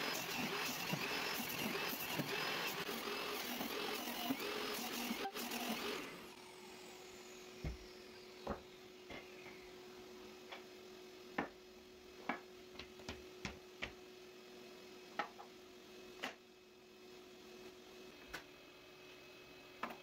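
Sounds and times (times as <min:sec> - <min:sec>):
table saw blade spinning down: 0:00.0 - 0:09.0.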